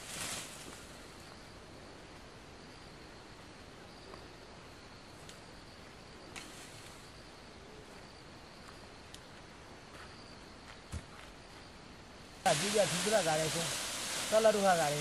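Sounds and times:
steady hiss: 0.0 - 7.5, 11.5 - 15.0
high insect hum: 0.0 - 15.0
faint ticks: 8.6 - 9.3.

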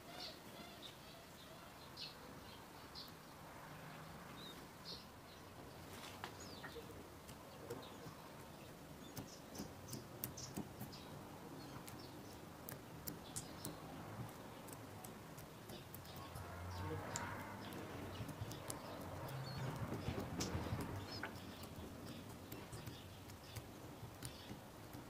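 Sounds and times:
fingertips pressing oiled dough: 8.4 - 16.4, 17.1 - 25.0
quick run of small clicks: 17.1 - 25.0.

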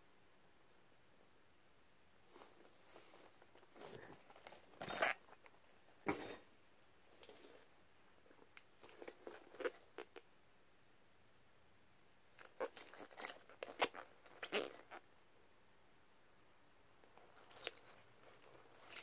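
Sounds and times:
rubber masks rustling on cloth: 2.2 - 6.5, 17.0 - 19.0.

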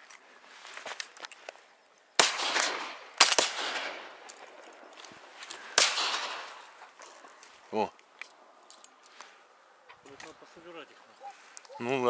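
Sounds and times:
shotgun shots with echo: 2.2 - 4.3, 5.7 - 6.7.

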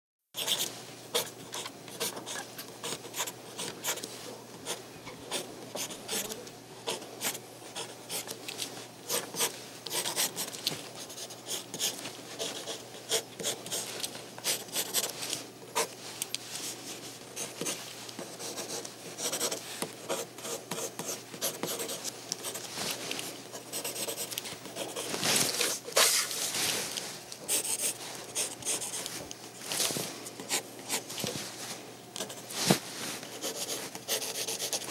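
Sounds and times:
pencil scratching on paper: 0.4 - 8.3, 9.1 - 15.2, 17.4 - 22.7, 23.6 - 26.3, 27.5 - 29.2, 33.3 - 34.9.

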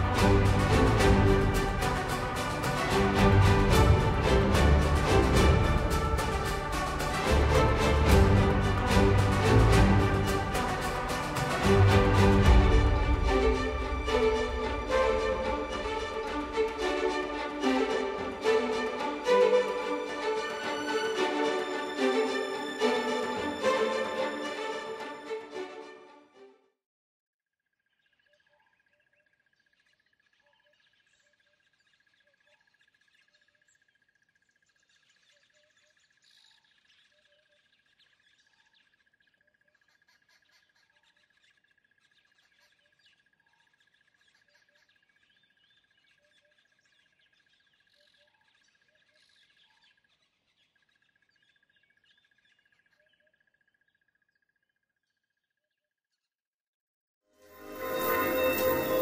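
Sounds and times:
steady high tone: 57.4 - 59.0.

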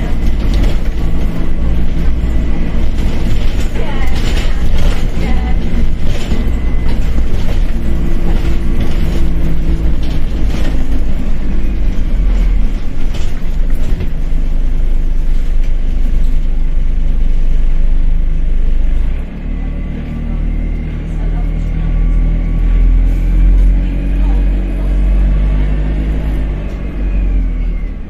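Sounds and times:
bus diesel engine running: 0.0 - 28.0.

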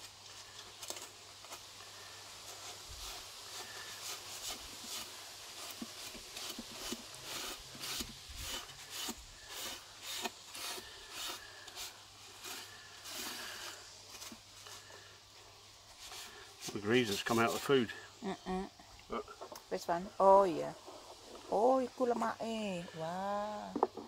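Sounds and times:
paper towel rubbing grill plate: 1.5 - 15.0, 15.8 - 18.0.

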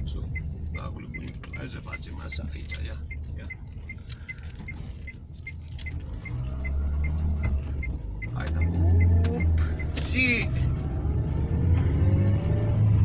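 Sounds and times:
steady light ticking: 0.0 - 7.2
car engine accelerating: 0.0 - 13.0.

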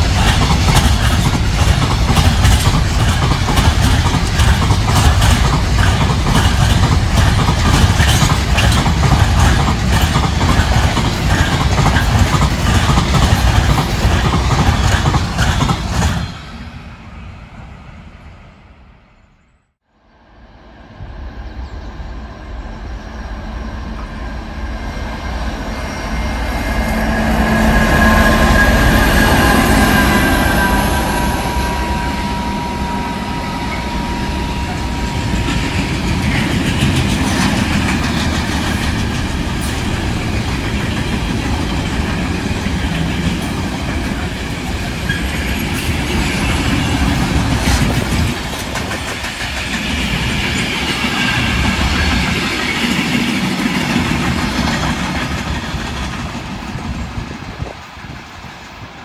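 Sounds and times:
train wheels clattering: 0.0 - 16.6, 25.9 - 58.5
train wheel squeal: 20.8 - 58.2.

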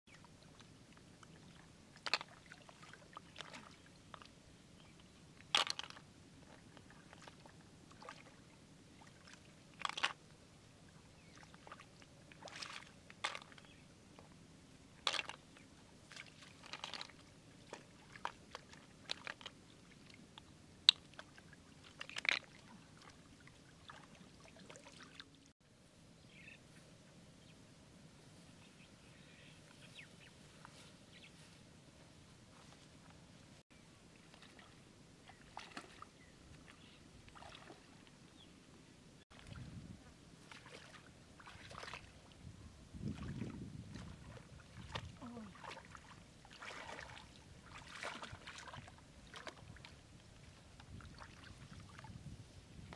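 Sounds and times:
splashing in muddy water: 1.2 - 4.3, 5.4 - 10.2, 11.2 - 13.8, 16.0 - 20.3, 20.9 - 25.5, 34.1 - 38.0, 39.3 - 42.4, 43.0 - 52.2.

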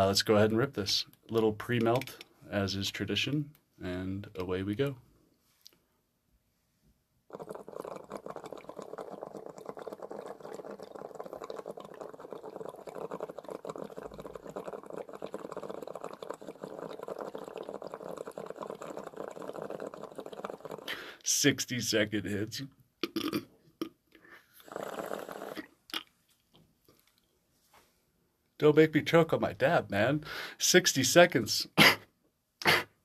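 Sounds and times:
water bubbling in glass: 7.3 - 21.0, 24.7 - 25.7.

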